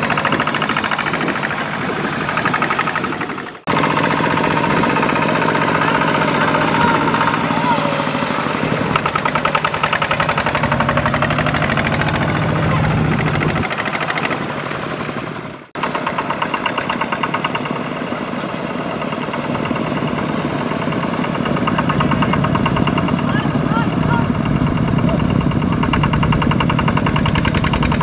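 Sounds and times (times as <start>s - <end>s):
diesel engine chugging: 0.0s - 28.0s.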